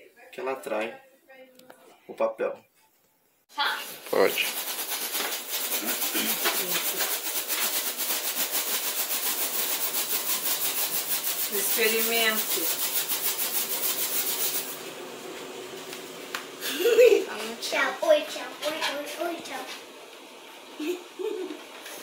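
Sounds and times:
balloon rubbing on hair: 0:03.6 - 0:14.8.

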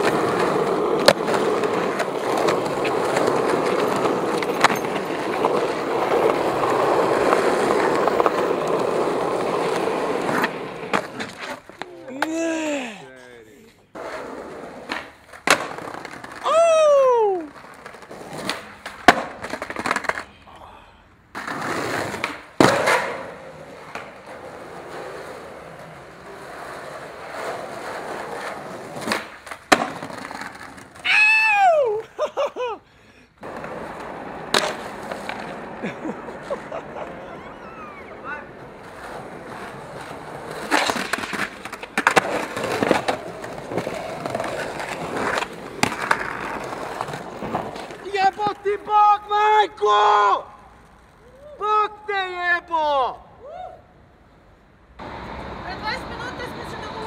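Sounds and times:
skateboard rolling over paving: 0:00.0 - 0:11.9, 0:13.9 - 0:20.3, 0:21.3 - 0:31.0, 0:33.4 - 0:48.4
skateboard clacking: 0:00.0 - 0:12.4, 0:13.9 - 0:20.4, 0:21.3 - 0:31.0, 0:33.4 - 0:49.4
skateboard rolling on tiles: 0:00.0 - 0:12.4, 0:13.9 - 0:20.3, 0:21.3 - 0:32.2, 0:33.4 - 0:48.6.

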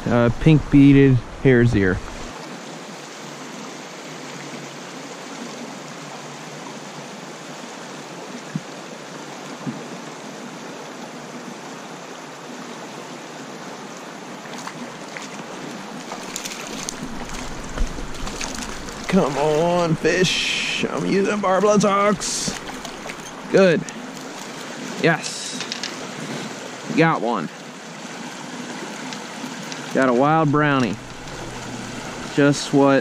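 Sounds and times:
stream rushing over rocks: 0:00.0 - 0:33.0
short water splashes: 0:14.4 - 0:25.4.

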